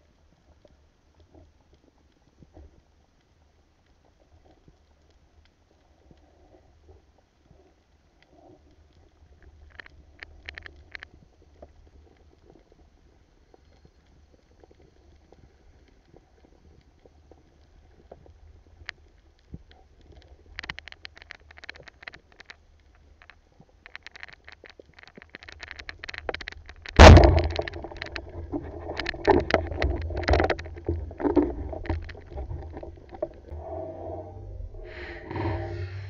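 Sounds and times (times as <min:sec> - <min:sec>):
faint clicks: 0:00.2 - 0:36.0
spear and line rattling: 0:25.4 - 0:33.5
speargun thump underwater: 0:26.8 - 0:33.6.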